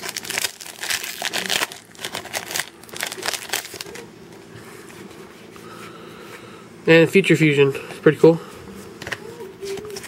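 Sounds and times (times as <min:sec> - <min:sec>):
foil wrapper crinkling: 0:00.0 - 0:04.1.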